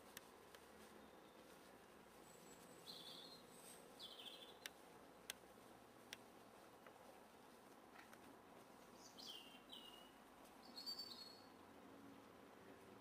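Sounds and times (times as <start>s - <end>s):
faint high bird chirps: 2.2s - 4.7s, 9.0s - 11.5s.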